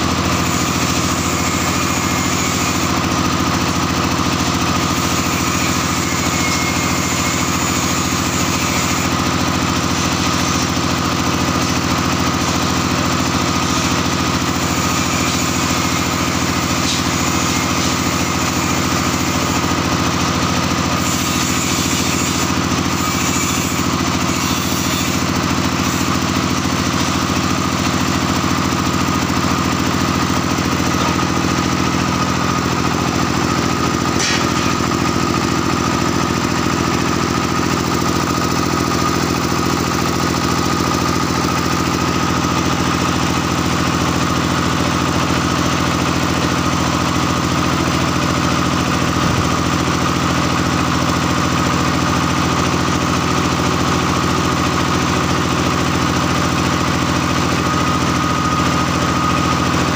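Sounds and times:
small engine droning: 0:00.0 - 0:59.9.

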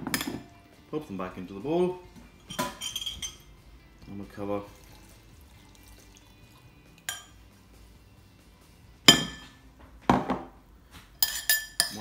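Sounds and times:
metal jug clinking on glass bowl: 0:02.4 - 0:03.5, 0:07.0 - 0:07.4, 0:11.2 - 0:12.0
liquid pouring from a jug: 0:04.0 - 0:06.7.

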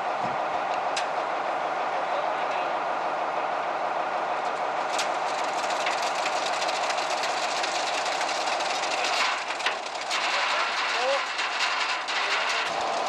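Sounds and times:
truck engine running: 0:00.0 - 0:13.0
fast rattling: 0:04.9 - 0:13.0.

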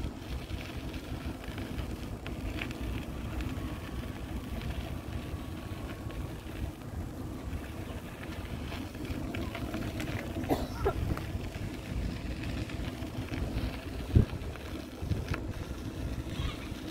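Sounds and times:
faint thin whine: 0:00.0 - 0:16.9
traffic rumble: 0:00.0 - 0:16.9
wind buffeting microphone: 0:00.0 - 0:16.9.

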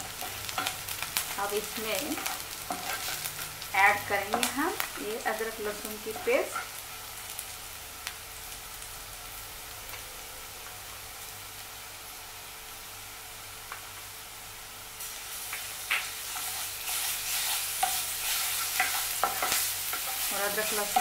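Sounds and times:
onions sizzling in hot oil: 0:00.0 - 0:21.0
wooden spatula scraping pan: 0:01.9 - 0:03.5.

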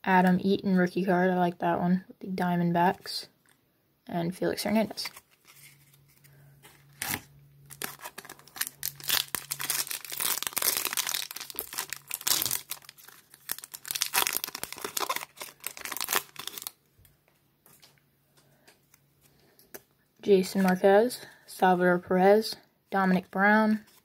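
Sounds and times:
foil wrapper tearing and crinkling: 0:06.9 - 0:16.8.

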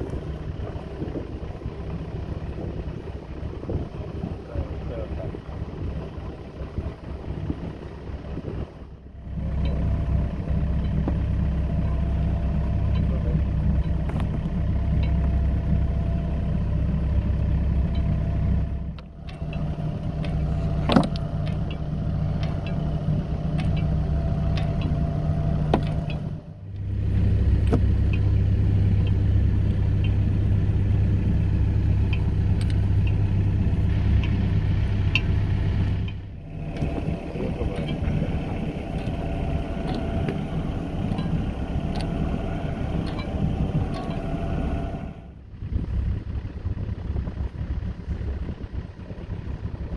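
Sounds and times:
boat engine humming: 0:00.0 - 0:49.9
sharp clicks and knocks: 0:18.9 - 0:22.9, 0:23.5 - 0:25.0, 0:25.6 - 0:26.9, 0:35.1 - 0:44.4.

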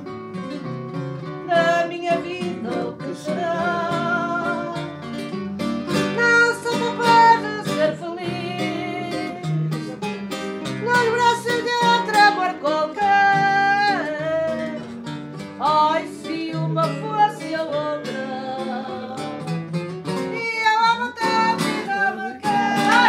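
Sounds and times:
plucked guitars: 0:00.0 - 0:23.0
woman singing with vibrato: 0:01.4 - 0:05.0, 0:06.0 - 0:09.7, 0:10.8 - 0:14.9, 0:15.6 - 0:19.3, 0:20.3 - 0:23.0.

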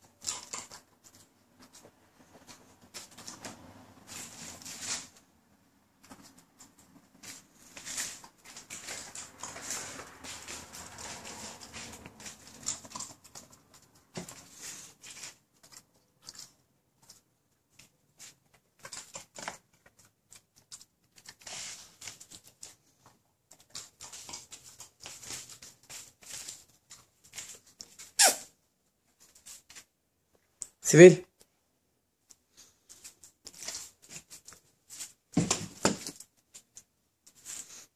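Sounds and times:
dog claws clicking on parquet floor: 0:06.0 - 0:17.2, 0:17.8 - 0:28.1, 0:32.9 - 0:37.7.

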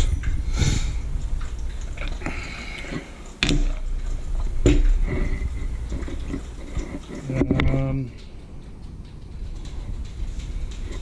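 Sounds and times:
low rumble: 0:00.0 - 0:02.6
handling noises: 0:01.1 - 0:11.0.

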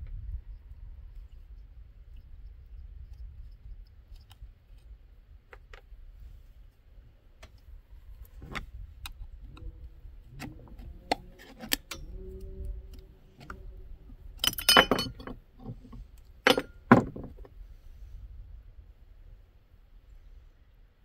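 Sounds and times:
screwdriver and screws clinking: 0:14.4 - 0:17.1
metal parts clattering: 0:14.4 - 0:17.3.

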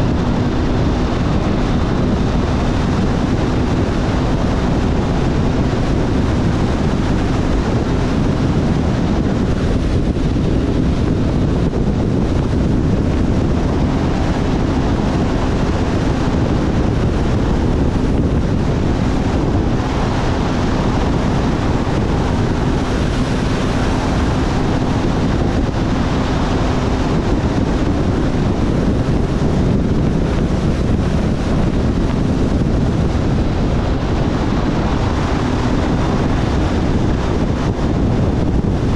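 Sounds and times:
motorcycle engine hum: 0:00.0 - 0:38.9
wind rushing over microphone: 0:00.0 - 0:38.9.

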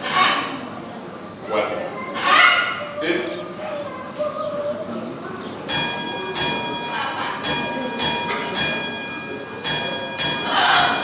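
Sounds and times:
small bell ringing: 0:05.7 - 0:11.0.

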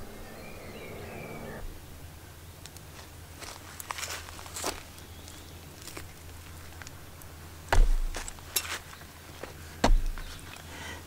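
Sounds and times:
meat thumping onto wooden board: 0:09.8 - 0:10.3.

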